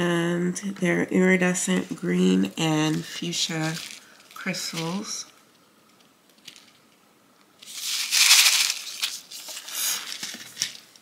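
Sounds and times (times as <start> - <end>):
packaging crinkling: 2.9 - 5.3, 6.0 - 7.0, 7.6 - 11.0.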